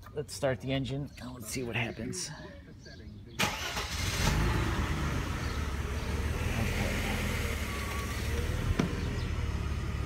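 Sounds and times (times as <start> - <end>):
car engine starting and idling: 3.4 - 10.0.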